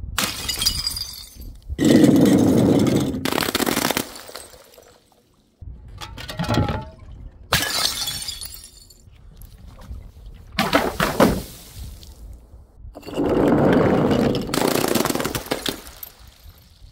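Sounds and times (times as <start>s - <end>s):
glass bottles smashing: 0.2s - 3.3s, 6.0s - 9.1s, 15.4s - 16.6s.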